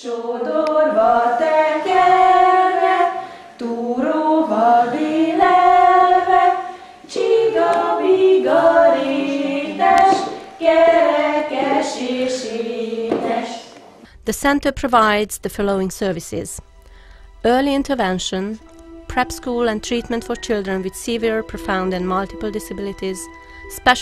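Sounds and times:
group singing unaccompanied: 0:00.0 - 0:14.0.

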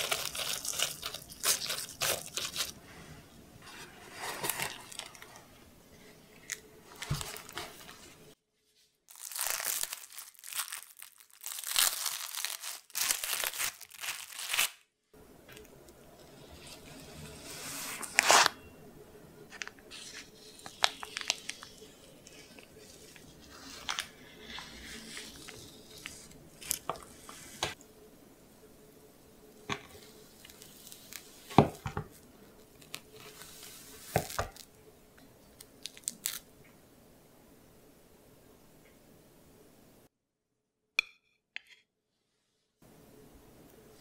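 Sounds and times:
cookie crumbs crunching: 0:00.0 - 0:02.8.

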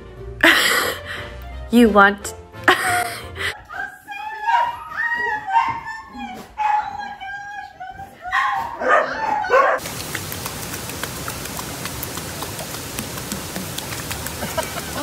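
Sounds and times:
dogs yipping and barking: 0:04.4 - 0:09.8
flowing splashing water: 0:09.8 - 0:15.0.

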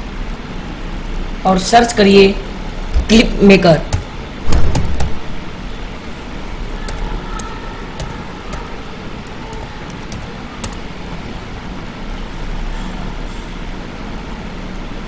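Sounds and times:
room noise rumble and hiss: 0:00.0 - 0:15.0
mouse and keyboard clicks: 0:06.9 - 0:10.9.

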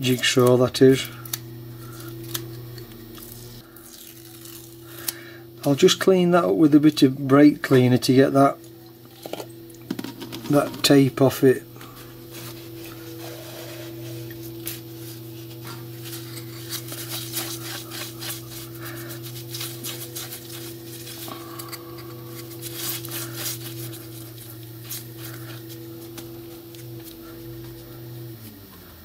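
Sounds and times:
steady low hum: 0:00.0 - 0:29.0
cloth rag rubbing plastic disc: 0:10.2 - 0:28.6.

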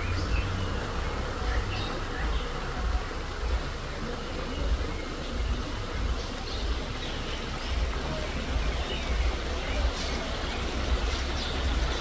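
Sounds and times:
woodland ambience hiss: 0:00.0 - 0:12.0.

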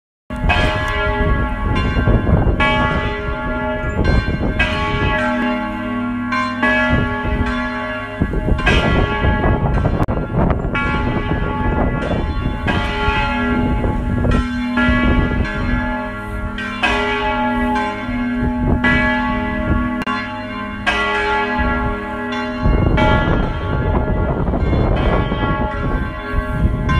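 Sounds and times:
church bells ringing: 0:00.3 - 0:26.9.

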